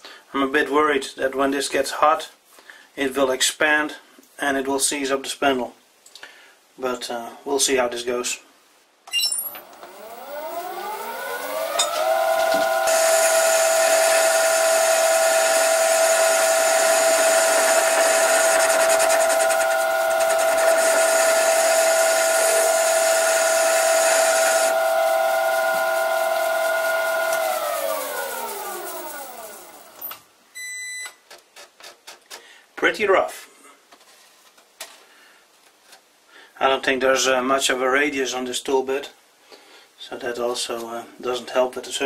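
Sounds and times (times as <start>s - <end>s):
lathe tool cutting steel: 9.6s - 29.8s
lathe spindle whine: 9.6s - 30.0s.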